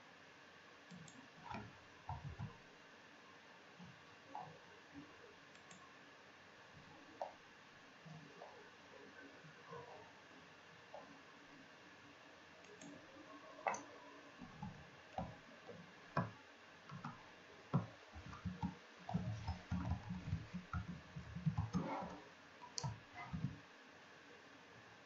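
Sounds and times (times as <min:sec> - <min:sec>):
keyboard typing clicks: 0:00.9 - 0:02.5, 0:05.5 - 0:05.8, 0:16.9 - 0:23.6.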